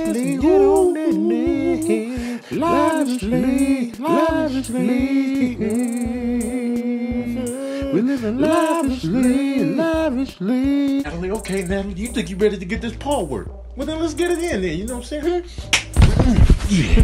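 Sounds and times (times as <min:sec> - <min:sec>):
man singing wavering melody: 0:00.0 - 0:12.3
steady low beat: 0:00.0 - 0:17.0.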